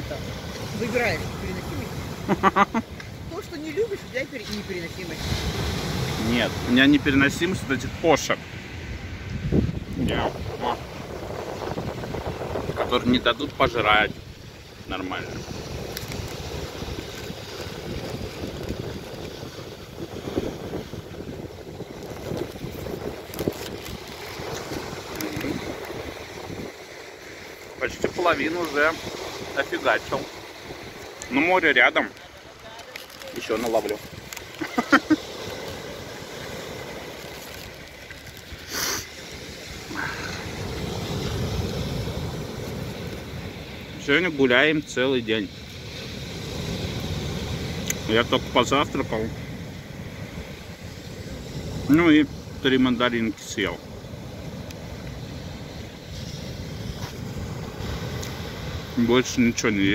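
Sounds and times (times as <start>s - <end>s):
wind buffeting microphone: 0.0s - 59.9s
short hiss: 38.6s - 39.2s.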